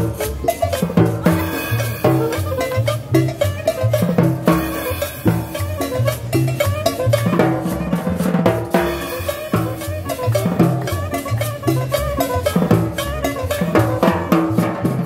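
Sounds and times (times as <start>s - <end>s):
congas: 0.0s - 15.0s
latin dance band playing: 0.0s - 15.0s.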